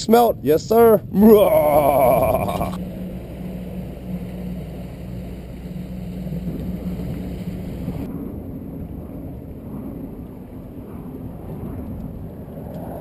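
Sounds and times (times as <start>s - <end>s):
boat motor running: 0.0s - 8.1s
wind: 0.0s - 13.0s.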